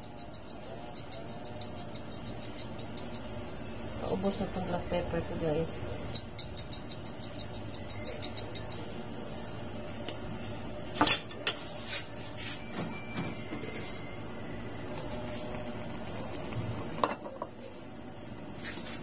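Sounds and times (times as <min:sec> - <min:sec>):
pepper shaker rattling: 0:00.0 - 0:03.3.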